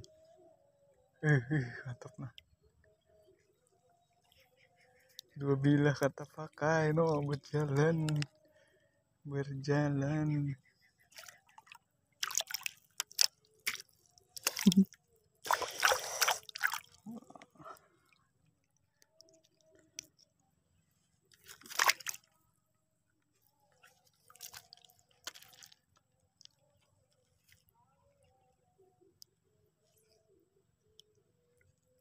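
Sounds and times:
fish splashing in water: 11.1s - 17.1s, 21.3s - 22.3s, 24.2s - 25.8s.

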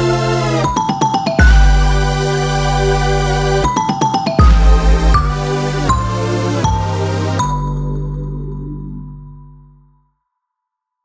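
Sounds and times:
held music chord: 1.4s - 3.7s, 4.4s - 9.8s.

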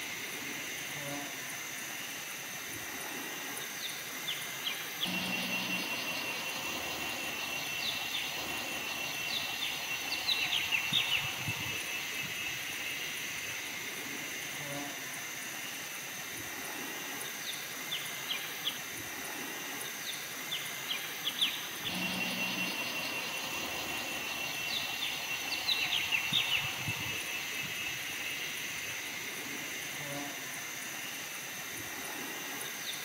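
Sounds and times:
insect drone: 0.0s - 33.0s
birds chirping: 3.8s - 13.3s, 20.1s - 29.0s.

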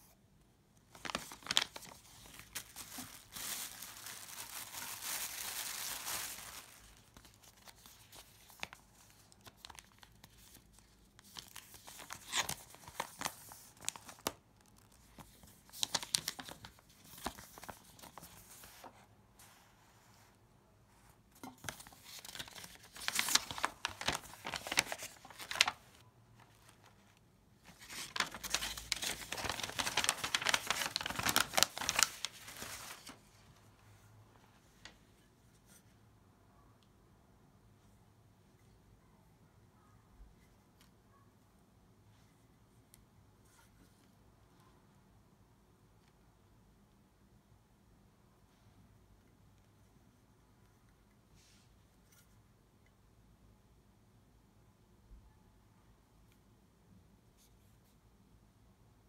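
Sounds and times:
paper rustling and crinkling: 0.9s - 20.3s, 21.3s - 33.5s.

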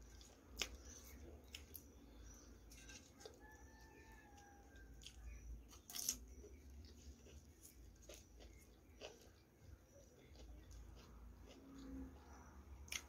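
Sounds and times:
faint clicks of eating: 0.0s - 2.0s, 2.7s - 13.0s.

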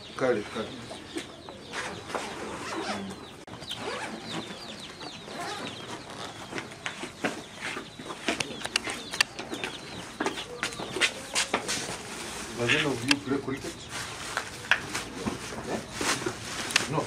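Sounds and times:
birds chattering: 0.0s - 17.0s
bags and boxes rustling: 10.8s - 17.0s.

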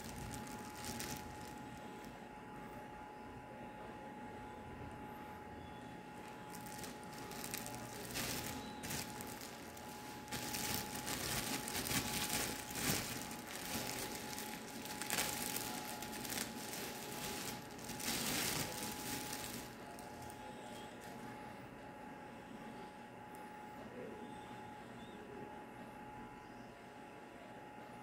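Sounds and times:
plastic packaging crinkling: 0.0s - 2.1s, 6.2s - 20.4s.

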